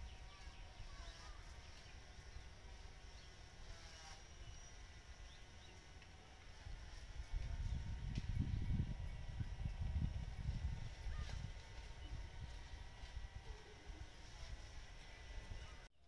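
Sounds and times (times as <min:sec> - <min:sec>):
faint high insect hum: 0:00.0 - 0:15.9
wind rumble on microphone: 0:06.4 - 0:15.9.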